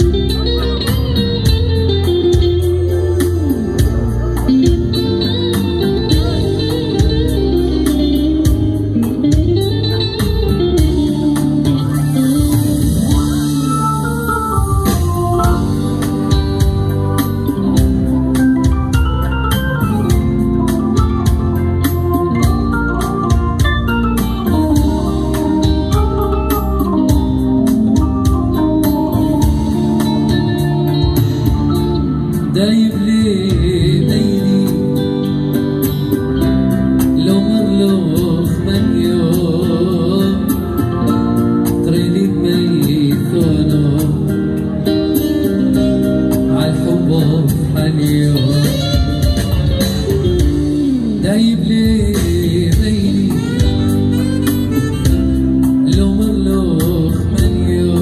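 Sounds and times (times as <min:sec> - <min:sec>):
man singing: 0:00.0 - 0:16.1, 0:31.4 - 0:35.6, 0:37.0 - 0:45.2, 0:45.8 - 0:54.2, 0:55.3 - 0:58.0
programmed drum beat: 0:00.0 - 0:43.2, 0:45.1 - 0:58.0
electric guitar: 0:00.0 - 0:58.0
organ-toned keyboard melody: 0:00.0 - 0:58.0.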